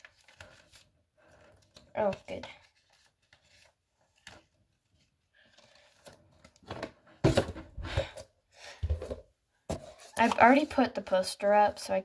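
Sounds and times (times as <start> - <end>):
paper rustling: 0.0 - 6.8.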